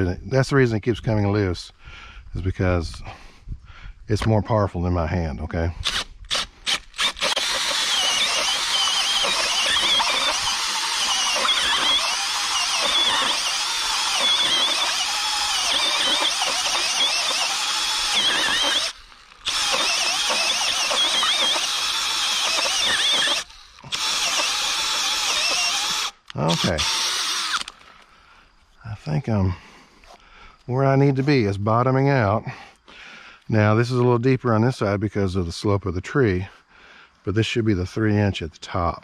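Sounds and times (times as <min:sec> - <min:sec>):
cordless drill drilling into wood: 0:05.8 - 0:27.9.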